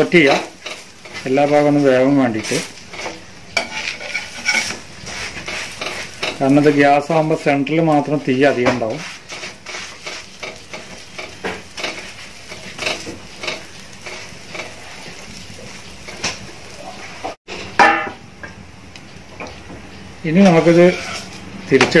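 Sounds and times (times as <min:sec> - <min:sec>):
metal spatula scraping pan: 0:00.0 - 0:07.4, 0:08.3 - 0:15.2, 0:20.4 - 0:21.4
bread sizzling in oil: 0:00.0 - 0:22.0.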